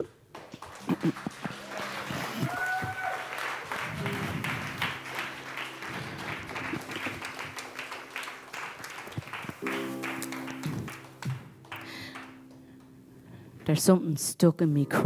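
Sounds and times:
audience applauding: 0.0s - 12.8s
low musical drone: 3.7s - 13.6s.

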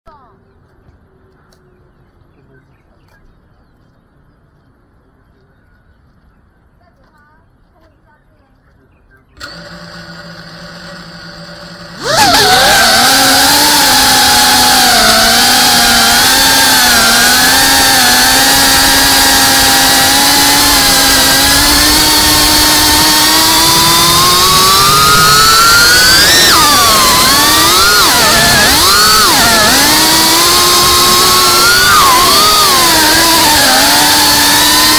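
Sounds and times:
drone motors whining: 9.4s - 34.9s.

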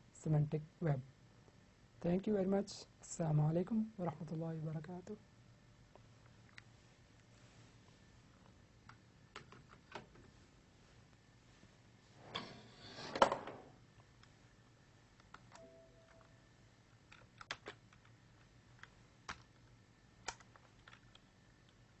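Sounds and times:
faint short tone: 15.5s - 16.5s.

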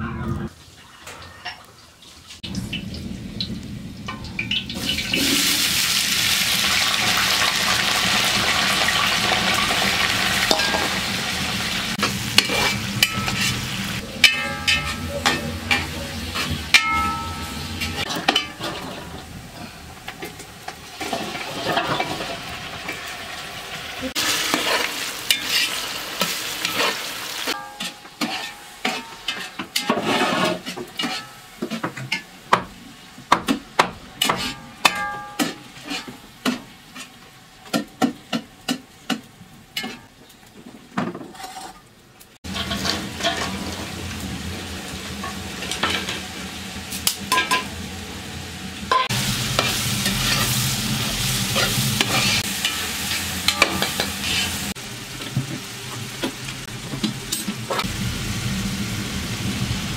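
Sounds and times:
onions sizzling in hot oil: 2.1s - 41.1s, 42.2s - 59.9s
metal spoon scraping pot: 12.4s - 19.2s, 27.6s - 32.2s.

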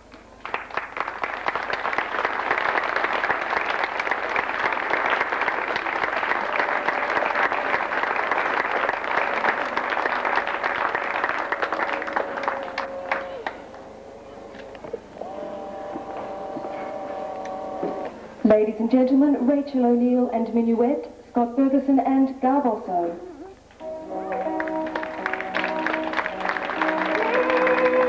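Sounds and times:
large audience applauding: 0.0s - 18.2s, 23.8s - 28.0s.

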